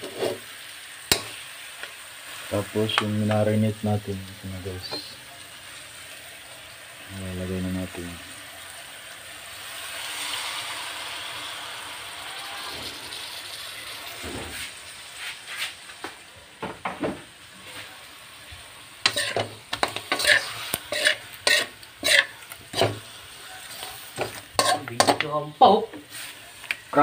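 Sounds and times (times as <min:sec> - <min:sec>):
meat sizzling in a frying pan: 0:00.0 - 0:16.6, 0:17.2 - 0:27.0
utensil scraping and knocking pan: 0:19.0 - 0:23.0, 0:23.8 - 0:25.3.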